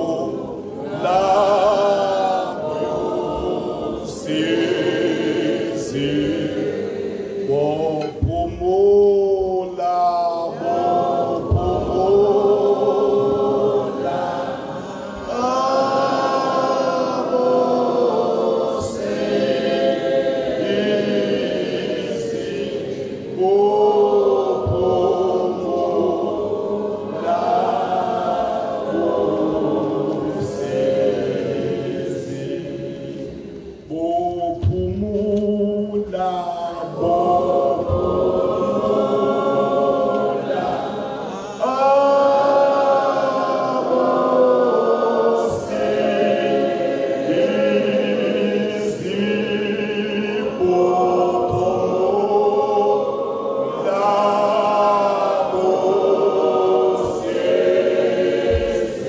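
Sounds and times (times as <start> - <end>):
male choir singing a hymn: 0.0 - 59.0.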